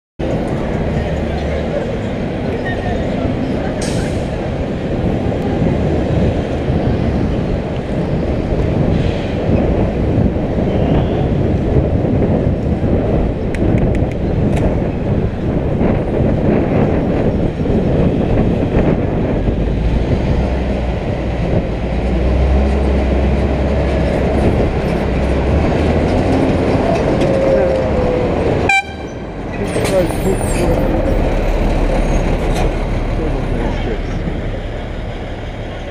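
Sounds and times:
road and traffic noise: 0:00.2 - 0:35.9
wind rushing over microphone: 0:00.2 - 0:35.9
truck engine hum: 0:11.4 - 0:35.9.

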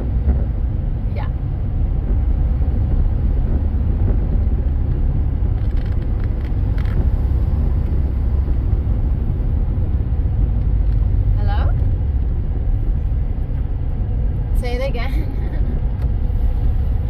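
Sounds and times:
car road and engine rumble: 0:00.0 - 0:17.0.

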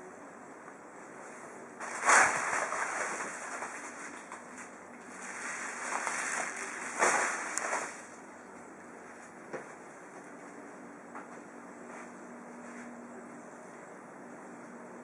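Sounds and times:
bubble wrap crinkling: 0:01.8 - 0:08.2.

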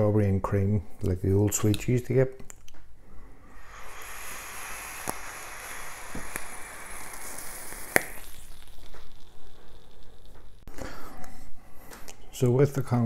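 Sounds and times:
breathy exhale: 0:03.0 - 0:08.3, 0:10.7 - 0:12.1
air hissing through atomiser: 0:03.1 - 0:11.2
vape coil sizzling and crackling: 0:03.4 - 0:10.7.

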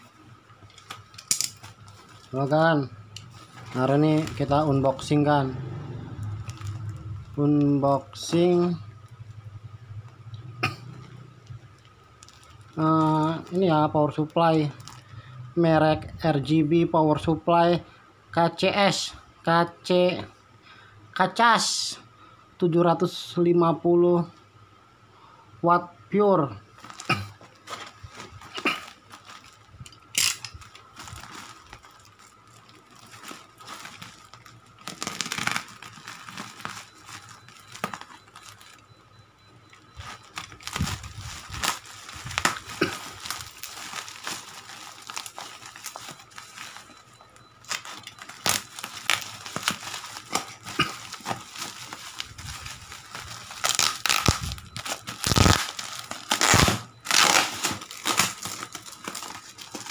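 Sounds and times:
packaging crinkling and crackling: 0:00.0 - 0:09.4, 0:10.9 - 0:15.3, 0:26.8 - 0:39.0, 0:39.7 - 0:59.9.

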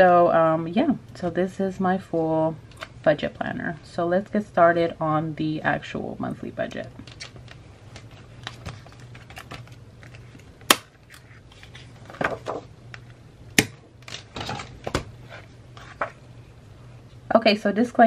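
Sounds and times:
paper pages rustling: 0:07.0 - 0:10.5, 0:11.1 - 0:12.7, 0:14.1 - 0:16.2.

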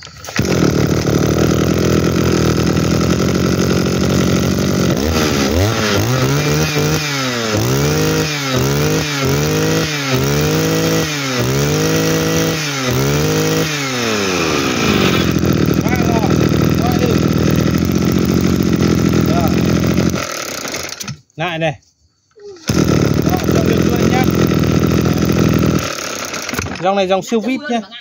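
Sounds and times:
brush-cutter engine revving: 0:00.0 - 0:21.2, 0:22.6 - 0:27.2
recoil starter pull: 0:00.0 - 0:21.3, 0:22.6 - 0:27.2.

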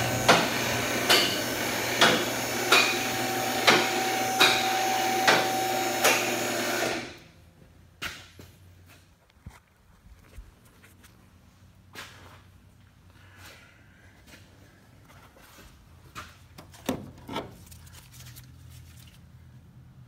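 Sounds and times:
hydraulic pump motor running: 0:00.0 - 0:07.2.

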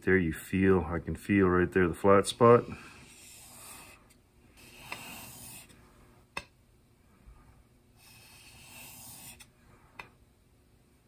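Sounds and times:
chisel rubbing on whetstone: 0:02.6 - 0:04.0, 0:04.6 - 0:05.7, 0:08.0 - 0:09.5.

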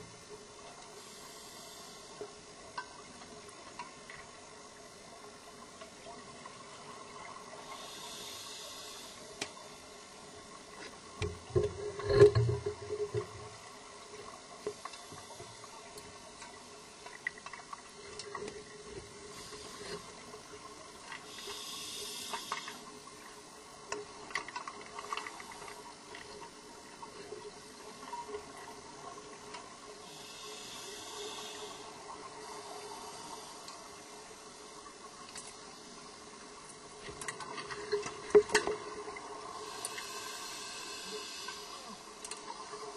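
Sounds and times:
regulator hissing inhalation: 0:07.7 - 0:09.3, 0:21.3 - 0:22.8, 0:30.1 - 0:33.7, 0:39.6 - 0:42.0.

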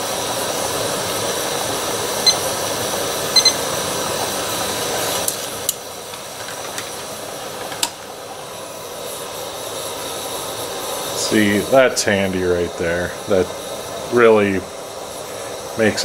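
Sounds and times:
stove burner hissing: 0:00.0 - 0:16.0
electronic timer beeps: 0:02.2 - 0:02.4, 0:03.4 - 0:03.6.

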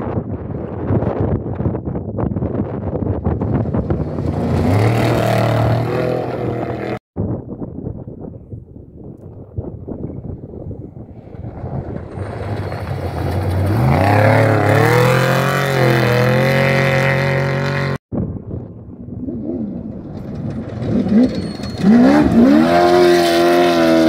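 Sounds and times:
race vehicle engine accelerating: 0:03.6 - 0:07.0, 0:11.2 - 0:18.0, 0:19.0 - 0:24.0
race engine revving: 0:03.9 - 0:07.0, 0:11.9 - 0:18.0, 0:19.2 - 0:24.0.

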